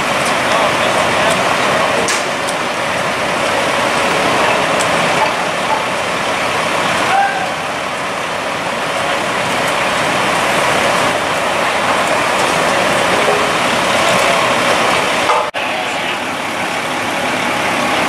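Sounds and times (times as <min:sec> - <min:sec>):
fire truck engines idling: 0:00.0 - 0:18.0.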